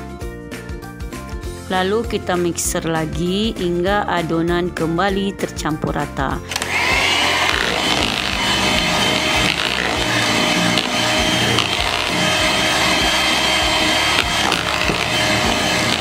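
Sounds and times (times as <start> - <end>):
electric hand mixer whirring: 6.4 - 16.0.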